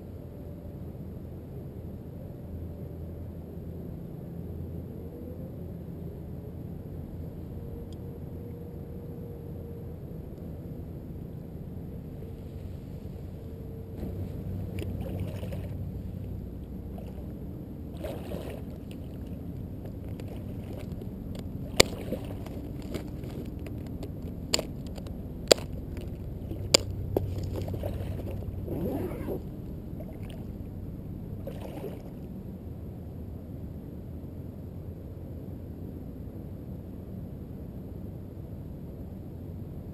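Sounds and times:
water sloshing: 14.0s - 30.7s, 31.4s - 32.3s.

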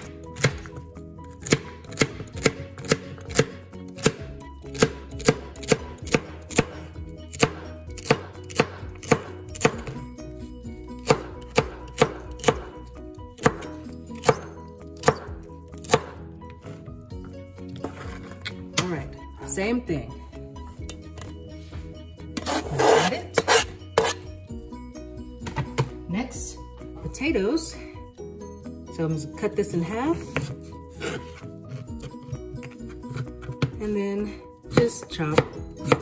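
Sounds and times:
knife chopping on cutting board: 14.3s - 16.2s.

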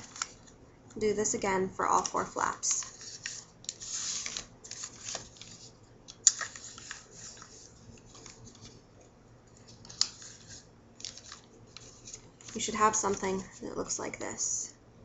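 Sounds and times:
paper rustling and creasing: 0.0s - 0.6s, 1.9s - 8.8s, 9.5s - 14.0s.

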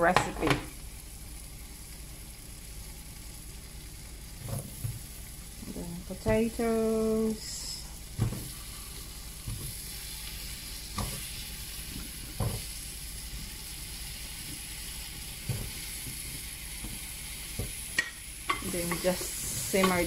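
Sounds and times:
hot oil sizzling in a pan: 0.0s - 20.0s.

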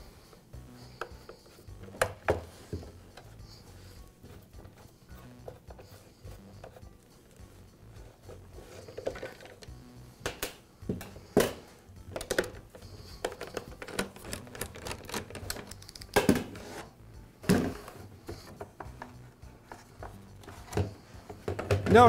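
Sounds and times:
screws and tools clattering: 13.2s - 16.1s.

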